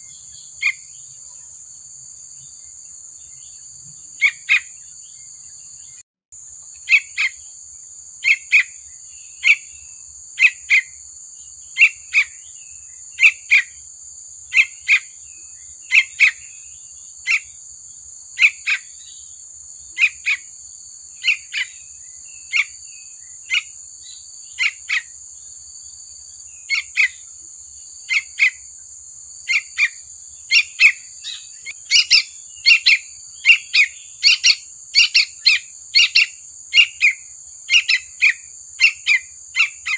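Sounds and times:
bird chirping: 0.0s - 39.9s.

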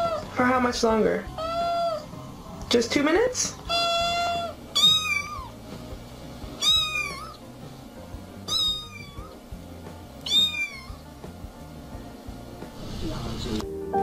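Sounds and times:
cat meowing: 1.3s - 2.1s, 3.6s - 5.6s, 6.6s - 7.4s, 8.5s - 9.4s, 10.2s - 11.1s.

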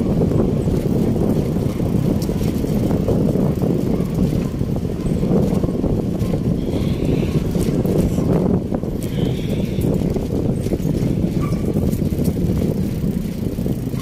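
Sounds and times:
bicycle rolling on concrete: 0.0s - 14.0s
wind buffeting microphone: 0.0s - 14.0s.

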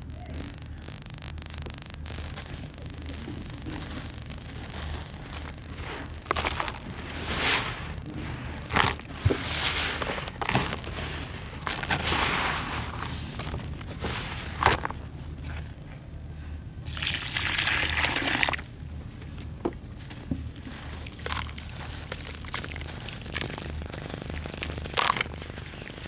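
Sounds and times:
grit clicks: 0.0s - 15.8s, 16.9s - 26.0s
hands digging through dry sand: 3.8s - 14.8s.

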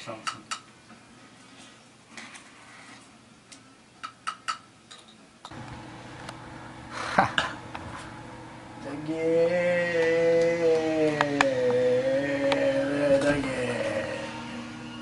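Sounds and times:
steady low hum: 5.5s - 15.0s.

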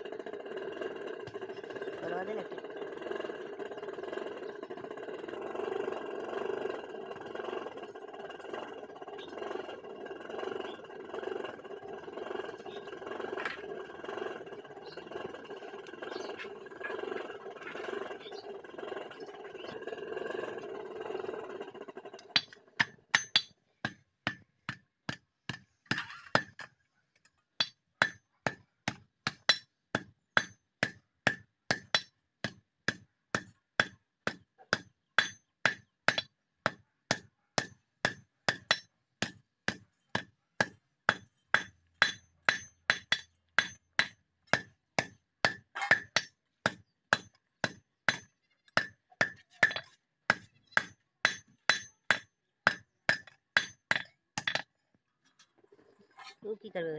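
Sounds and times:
hammer striking metal on anvil: 27.6s - 54.7s.

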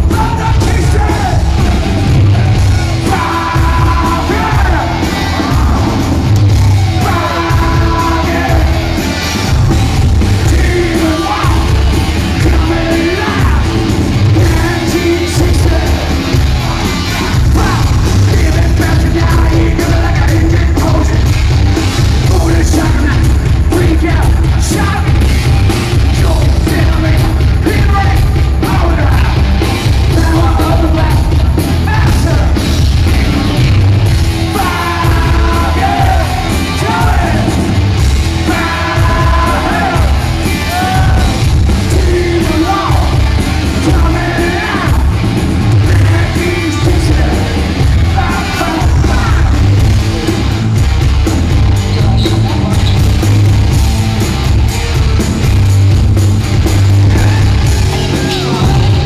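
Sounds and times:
person singing: 0.0s - 9.0s, 10.4s - 21.3s, 30.1s - 37.7s, 38.3s - 49.8s, 57.0s - 59.0s
live metal band: 0.0s - 59.0s.

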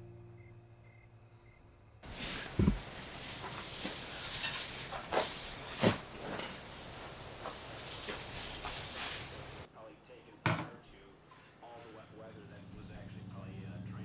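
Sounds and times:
scrapes and thumps: 2.0s - 9.6s
pitchfork rustling through straw: 2.0s - 9.7s.

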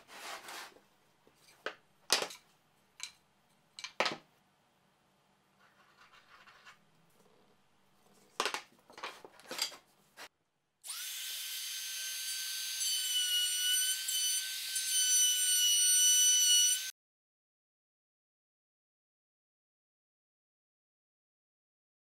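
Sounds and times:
router whining cutting plywood: 10.9s - 16.9s.

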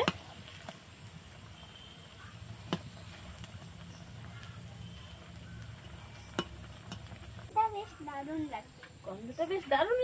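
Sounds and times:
food deep-frying in oil: 0.0s - 10.0s
metal spatula tapping pan: 5.8s - 7.2s.

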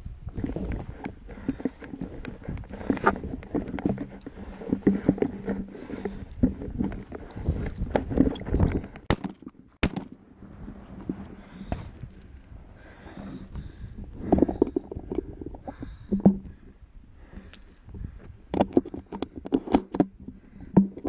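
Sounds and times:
footsteps on rocky ground: 0.3s - 9.1s.

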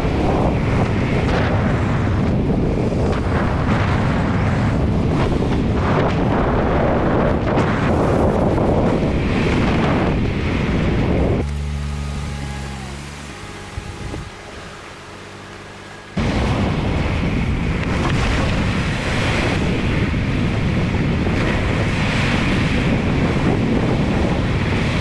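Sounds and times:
steady low hum: 0.0s - 18.0s
car road noise: 0.0s - 25.0s
wind buffeting microphone: 0.0s - 25.0s.

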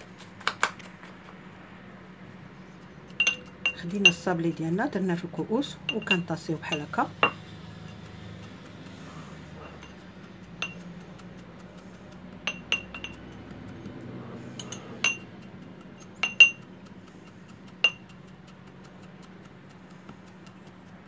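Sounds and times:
glass tumblers clinking: 3.1s - 4.3s, 5.8s - 7.5s, 12.4s - 13.2s, 14.6s - 15.3s, 16.2s - 16.6s.

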